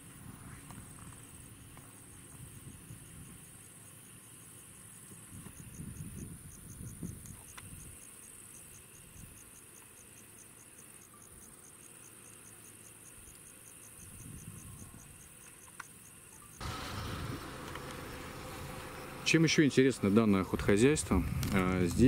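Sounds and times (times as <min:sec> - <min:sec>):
crickets chirping: 0:00.0 - 0:22.0
low rumble on microphone: 0:20.4 - 0:22.0.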